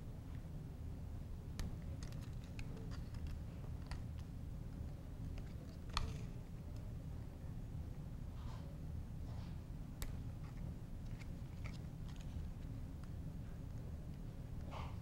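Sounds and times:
steady low hum: 0.0 - 15.0
small plastic clicks and snaps: 1.6 - 4.3.

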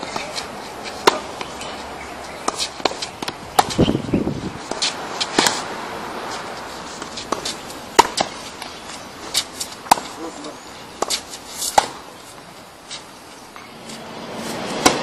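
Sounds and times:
footsteps on court: 4.6 - 14.0
tennis ball pops: 8.0 - 8.7, 9.8 - 10.2.

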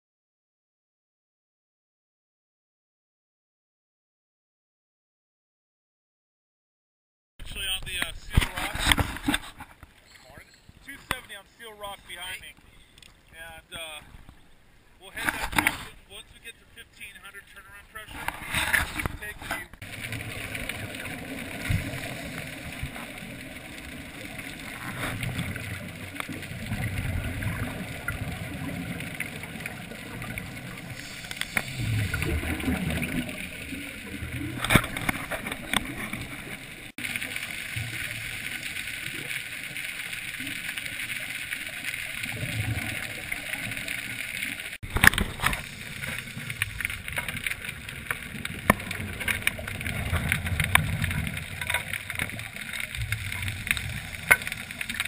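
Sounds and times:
regulator bubbles underwater: 18.2 - 55.0.

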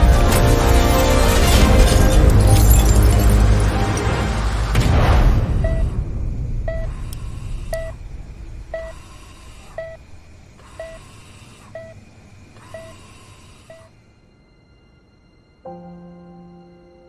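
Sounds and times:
patient monitor beeping: 5.6 - 5.9, 6.7 - 7.0, 7.7 - 8.0, 8.7 - 13.9.

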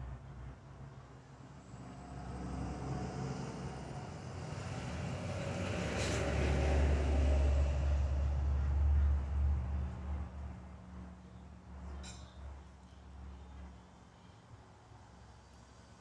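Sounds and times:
passing vehicle rumble: 0.0 - 11.9.

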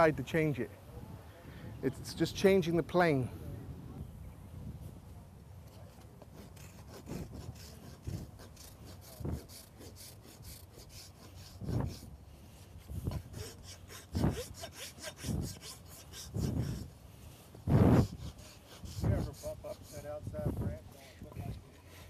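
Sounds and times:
hoof rasp scraping hoof: 5.7 - 22.0.

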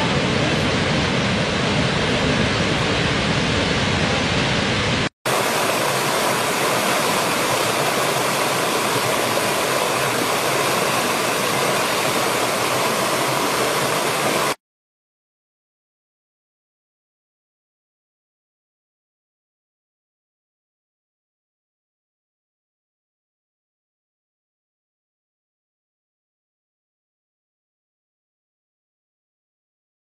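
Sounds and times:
large waterfall rushing: 0.0 - 14.6
stream splashing over rocks: 5.3 - 14.6.

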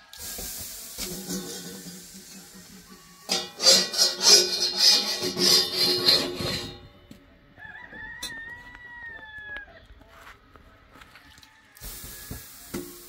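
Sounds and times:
knife scraping iron griddle: 0.4 - 6.9.

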